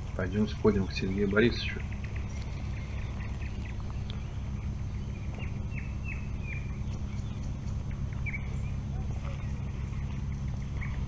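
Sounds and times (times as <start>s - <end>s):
low rumble on microphone: 0.0s - 11.0s
nightingale singing: 0.0s - 11.0s.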